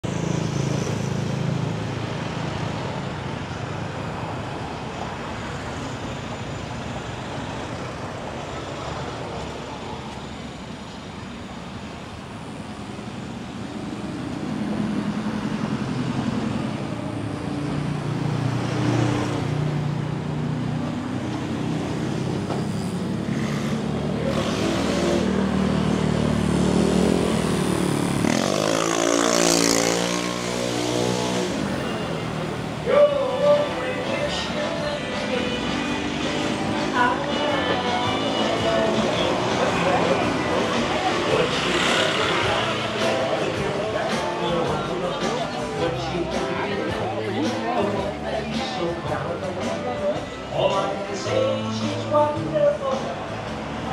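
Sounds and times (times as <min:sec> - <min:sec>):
cars and motorbikes passing: 0:00.0 - 0:53.9
steady engine hum: 0:00.0 - 0:53.9
vehicle engine revving: 0:14.0 - 0:46.4.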